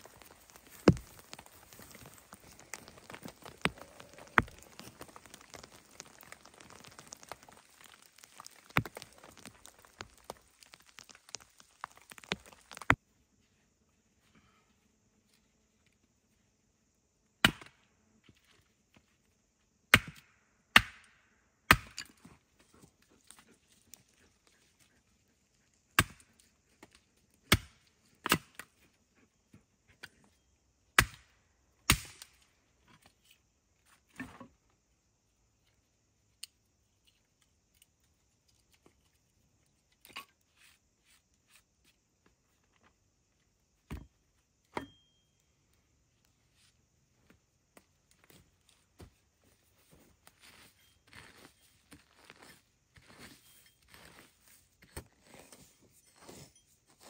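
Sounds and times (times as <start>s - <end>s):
axe chopping wood: 0.6s - 2.1s, 17.4s - 17.8s, 19.9s - 21.1s, 21.7s - 22.1s, 26.0s - 26.2s, 27.5s - 28.6s, 31.0s - 31.3s, 31.9s - 32.3s.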